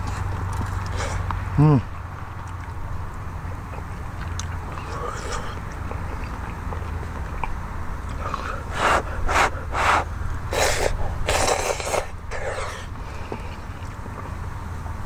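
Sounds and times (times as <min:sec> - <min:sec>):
person slurping noodles: 0:08.1 - 0:13.6.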